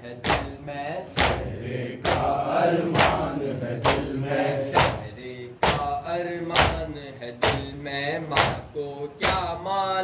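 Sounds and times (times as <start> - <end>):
man leading a lament: 0.0 - 10.0
group chanting: 1.0 - 6.9
hands slapping chests: 1.2 - 4.1, 4.7 - 5.8, 8.3 - 9.5.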